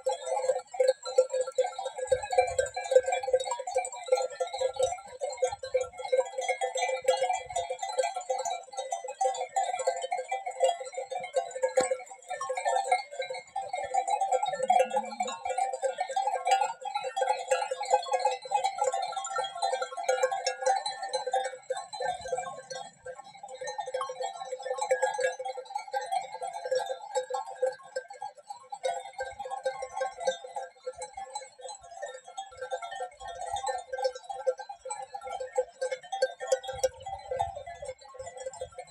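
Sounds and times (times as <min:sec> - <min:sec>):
sheep bells clanking: 0:05.2 - 0:27.4.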